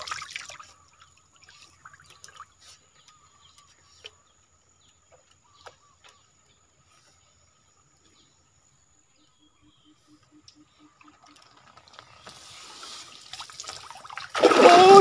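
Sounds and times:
water dripping and splashing: 0:00.0 - 0:02.6, 0:11.0 - 0:15.0.

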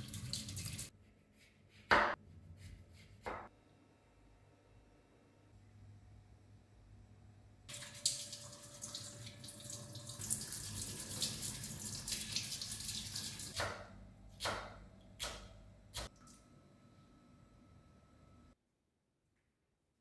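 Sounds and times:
water splashing from tap: 0:00.0 - 0:00.9, 0:07.7 - 0:13.6.

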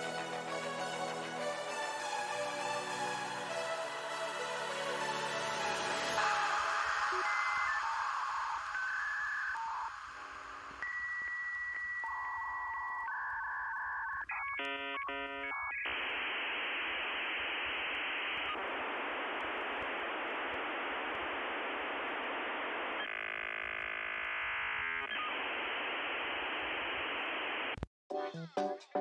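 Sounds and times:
modem hiss: 0:00.0 - 0:27.9
modem warbling: 0:05.8 - 0:27.7
steady telephone tones: 0:06.1 - 0:27.7.

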